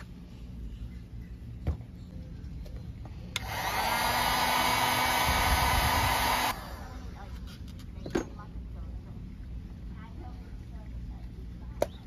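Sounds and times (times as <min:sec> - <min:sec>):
heat gun blowing with motor whine: 0:03.4 - 0:07.0.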